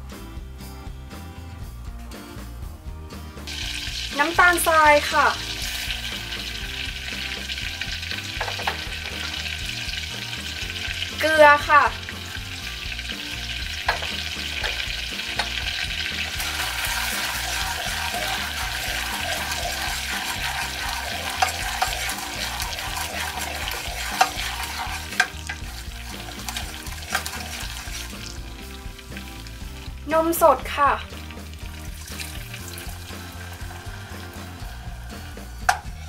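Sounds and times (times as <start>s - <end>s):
butter and water boiling and sizzling: 3.2s - 36.0s
spoon knocking against pan: 8.4s - 9.3s, 13.8s - 15.8s.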